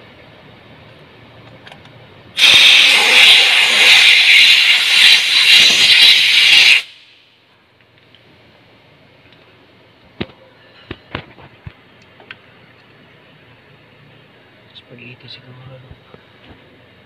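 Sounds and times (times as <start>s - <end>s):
compressed air hissing from air gun: 2.4s - 7.3s.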